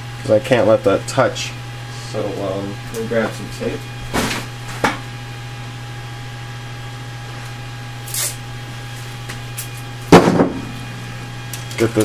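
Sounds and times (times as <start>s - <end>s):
steady low hum: 0.0s - 12.0s
loud knock: 10.1s - 10.7s.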